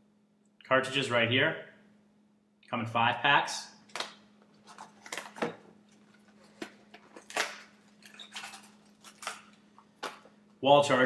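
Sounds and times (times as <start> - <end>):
packaging rustling: 3.9 - 10.4.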